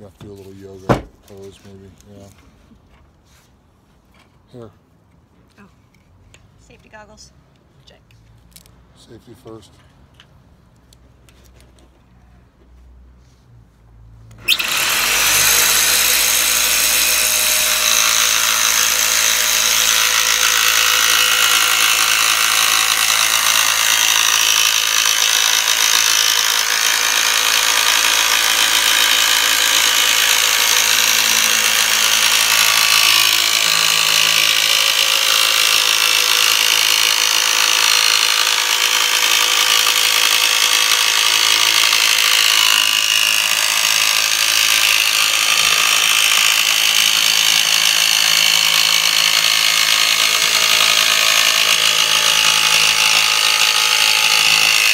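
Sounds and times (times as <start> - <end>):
electric jigsaw cutting metal: 14.4 - 54.9.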